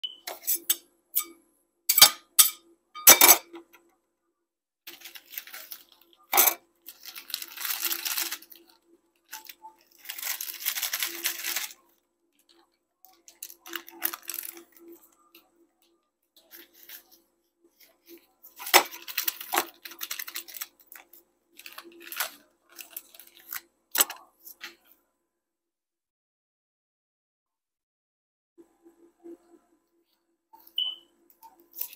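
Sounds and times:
metal spatulas clinking on steel plate: 1.9s - 3.6s
packaging crinkling and tearing: 4.9s - 11.9s, 13.2s - 15.0s, 18.6s - 24.2s.

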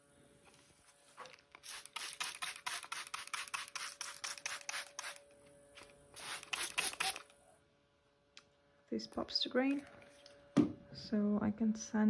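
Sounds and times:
spray bottle hissing sprays: 1.6s - 5.2s, 6.2s - 7.2s.

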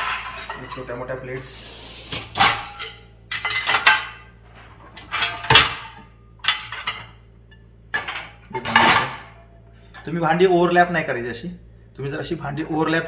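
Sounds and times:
metal dishes clattering in a rack: 0.0s - 1.1s, 2.2s - 9.5s.

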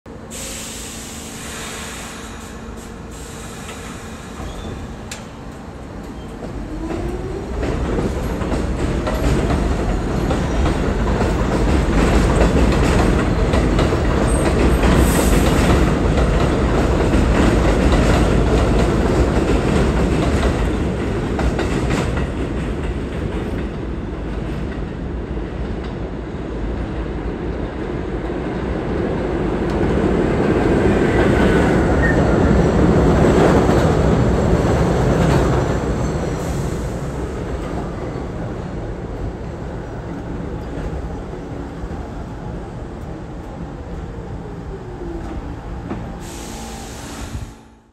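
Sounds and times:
train wheels rumbling on steel: 1.4s - 27.1s.

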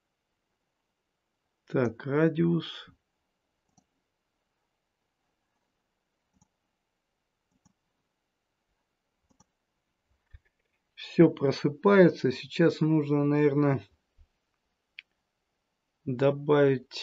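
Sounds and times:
faint computer mouse clicks: 6.3s - 6.6s, 7.5s - 7.8s, 9.3s - 9.5s.

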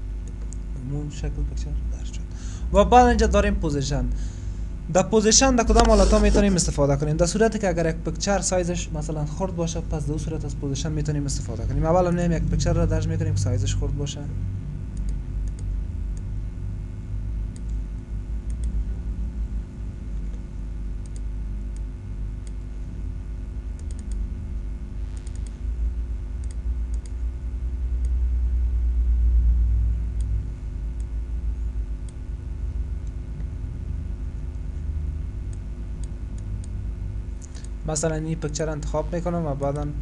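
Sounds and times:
low hum: 0.0s - 40.0s
computer mouse clicking: 14.9s - 15.7s, 17.5s - 17.8s, 18.4s - 18.8s, 21.0s - 22.7s, 23.8s - 24.2s, 25.2s - 25.6s, 26.4s - 27.2s, 37.4s - 37.7s.

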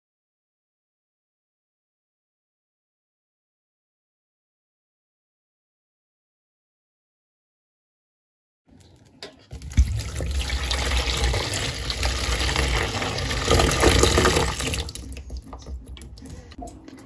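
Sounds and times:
water pouring into a tub: 9.5s - 15.6s.

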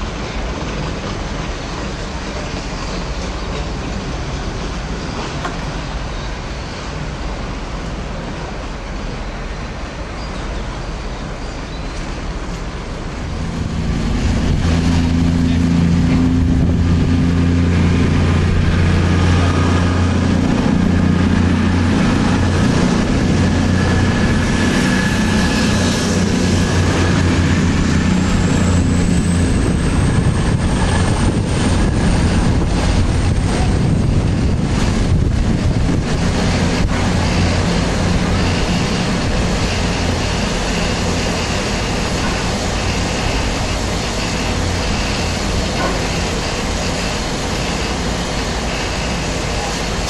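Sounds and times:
steam locomotive low hum: 0.0s - 50.0s
steam hissing: 12.1s - 50.0s.

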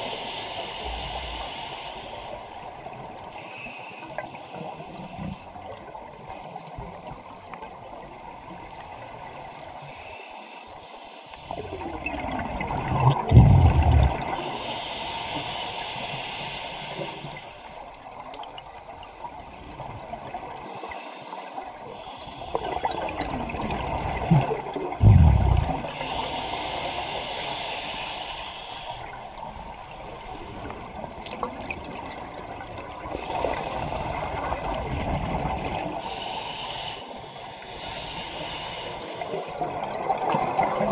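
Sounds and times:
regulator inhale hiss: 0.0s - 7.3s, 8.9s - 12.0s, 13.7s - 17.9s, 20.6s - 23.2s, 25.3s - 31.0s, 33.1s - 34.8s, 36.0s - 40.9s
exhaled bubbles rumbling: 11.7s - 14.4s, 22.6s - 26.1s.

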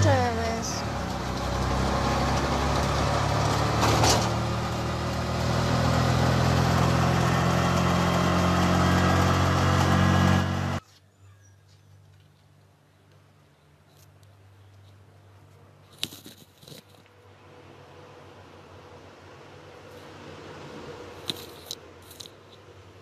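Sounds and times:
engine idling: 0.0s - 10.8s
brief rustle: 13.9s - 17.1s, 21.2s - 22.6s.

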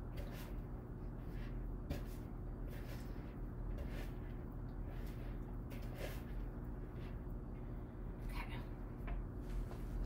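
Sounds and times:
wooden spoon working dough: 0.0s - 8.3s
spoon scraping bowl: 0.1s - 7.3s.

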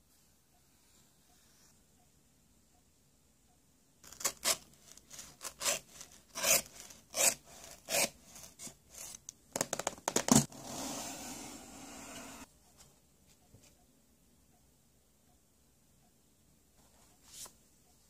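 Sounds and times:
knife cutting cardboard: 4.0s - 9.2s.

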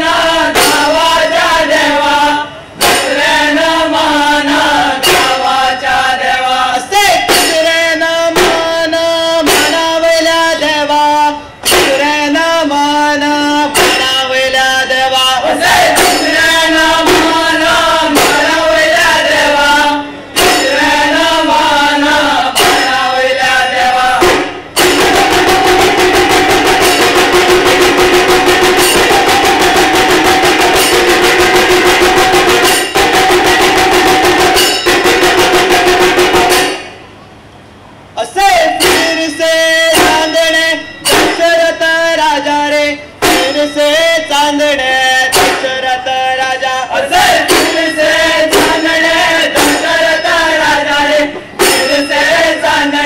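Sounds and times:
drum beats: 0.0s - 2.0s, 2.7s - 37.1s, 38.3s - 42.4s, 43.0s - 46.3s, 47.0s - 53.0s
men singing folk song: 0.0s - 24.5s, 38.2s - 53.0s.

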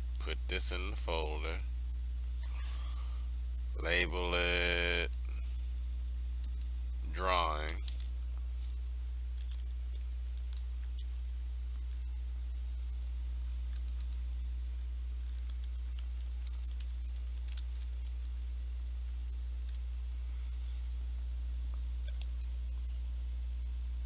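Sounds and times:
low hum: 0.0s - 24.0s
computer mouse clicks: 13.6s - 14.2s.

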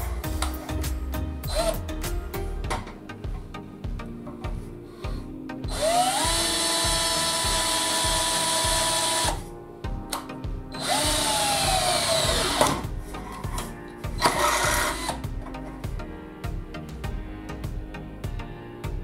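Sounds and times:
background music with steady beat: 0.0s - 19.0s
cordless drill motor whine: 5.7s - 9.4s, 10.8s - 12.8s, 14.2s - 15.2s
drill bit boring into steel: 5.7s - 9.4s, 10.8s - 12.8s, 14.2s - 15.2s.

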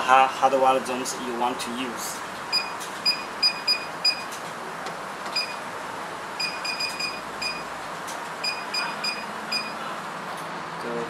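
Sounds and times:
keypad beeps: 2.5s - 4.3s, 5.3s - 5.6s, 6.4s - 7.7s, 8.4s - 9.8s.

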